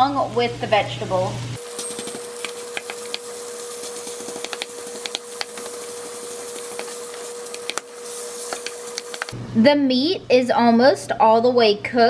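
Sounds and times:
meat sizzling in a skillet: 1.3s - 9.4s.

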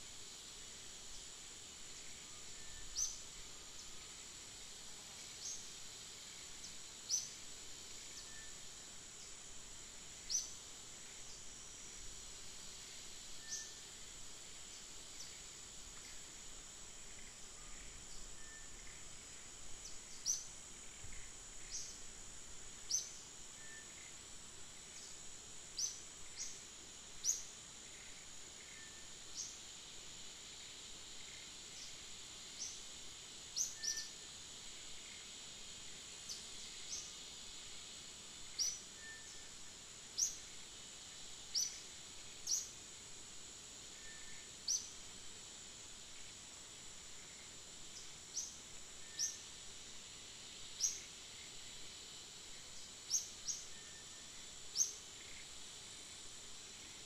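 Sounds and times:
high-pitched insect drone: 0.0s - 57.0s.

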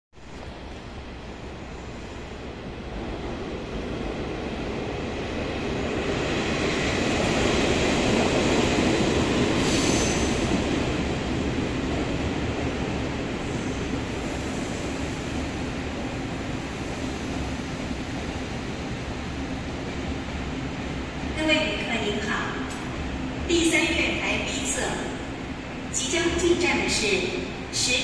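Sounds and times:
train wheels rumbling on rail: 0.2s - 27.9s
high brake squeal: 9.6s - 10.3s.

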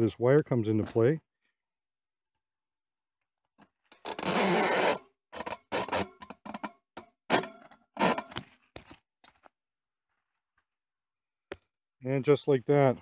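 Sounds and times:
metal rod scraping: 3.9s - 8.4s.

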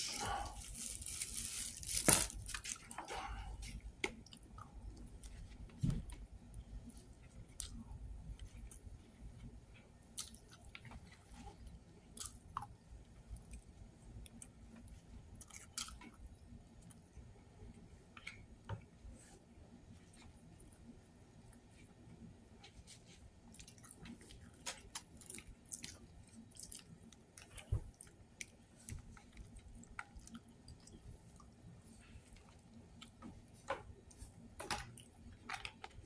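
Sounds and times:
person chewing food: 2.4s - 17.1s, 23.4s - 36.0s.

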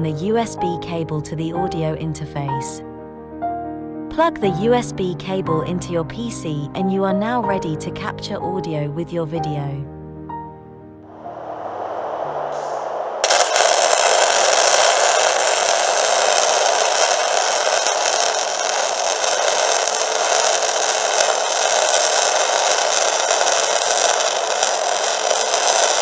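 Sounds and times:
welding arc crackling: 13.2s - 26.0s.

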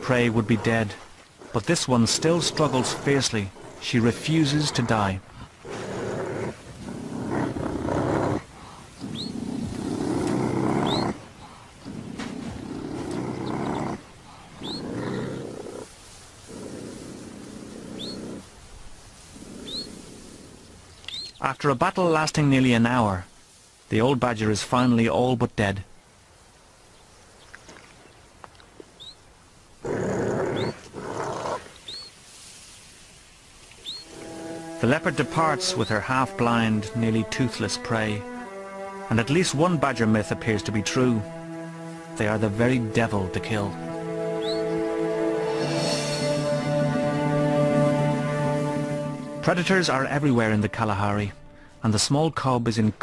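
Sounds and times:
animals growling: 0.0s - 18.5s, 19.2s - 20.9s, 29.8s - 31.8s, 43.7s - 49.2s
faint bird chirps: 9.0s - 9.4s, 13.4s - 14.9s, 18.0s - 18.3s, 19.6s - 20.0s, 20.9s - 21.4s, 28.9s - 29.2s, 31.7s - 32.2s, 33.8s - 34.1s, 44.4s - 44.8s.

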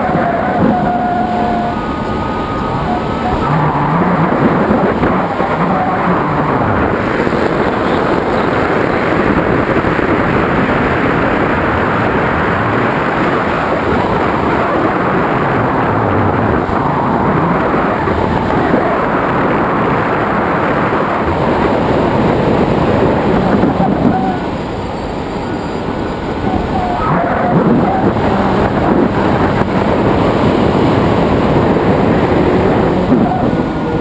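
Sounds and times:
airflow buffeting microphone: 0.0s - 34.0s.

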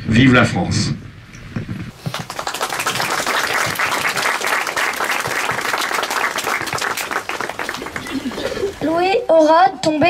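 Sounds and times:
audience applauding: 1.9s - 9.0s.

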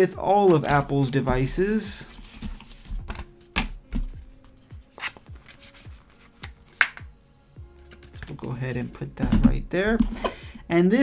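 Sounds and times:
paper rubbing and sliding: 1.9s - 3.0s, 4.8s - 6.5s.

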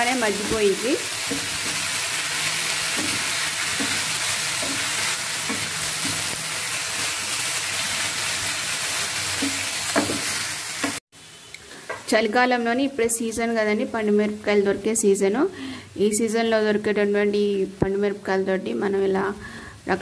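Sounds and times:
leaves sizzling in a pan: 0.0s - 12.2s
wooden spatula stirring: 0.4s - 6.4s.

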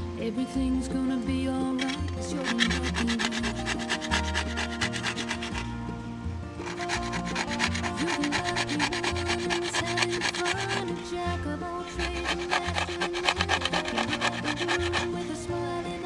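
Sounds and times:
background music: 0.0s - 16.0s
metal file scraping blade: 1.8s - 5.7s, 6.6s - 11.0s, 11.8s - 15.3s.

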